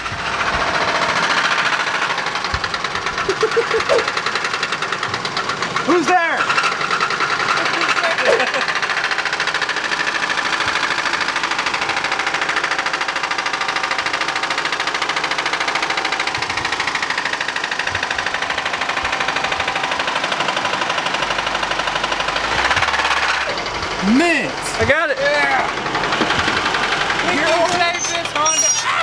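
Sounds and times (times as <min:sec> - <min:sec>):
engine rod knock: 0:00.0 - 0:05.9, 0:08.6 - 0:21.3, 0:25.8 - 0:28.4
car engine running: 0:00.0 - 0:29.0.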